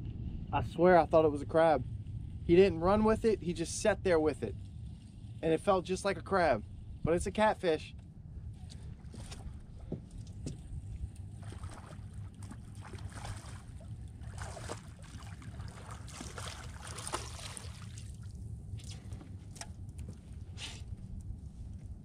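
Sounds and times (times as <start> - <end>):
wind rumbling on microphone: 0.0 - 22.0
water lapping at a boat: 1.6 - 22.0
splashing: 11.4 - 19.2.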